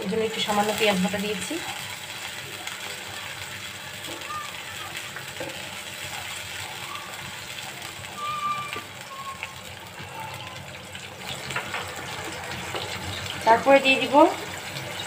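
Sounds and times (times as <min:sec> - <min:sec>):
onions sizzling in oil: 0:00.0 - 0:15.0
faint high tone: 0:08.2 - 0:09.5.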